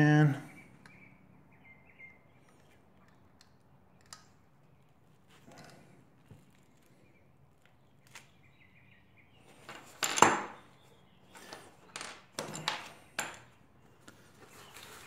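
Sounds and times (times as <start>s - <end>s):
metal parts knocking and clinking: 11.7s - 13.6s.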